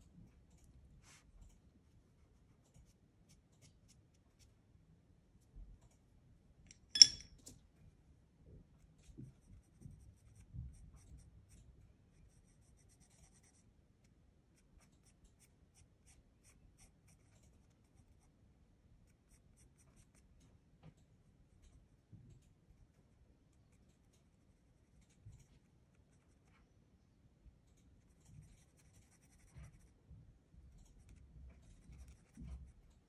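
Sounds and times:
pastel stick clinking on plate: 7.0 - 7.3.

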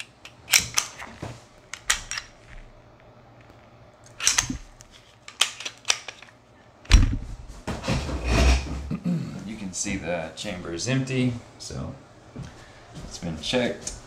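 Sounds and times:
pistol slide metallic clicks: 4.1 - 4.7.

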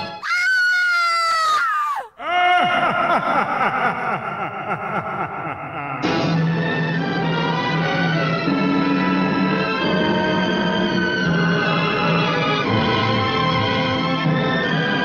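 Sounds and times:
woman screaming: 0.2 - 2.7.

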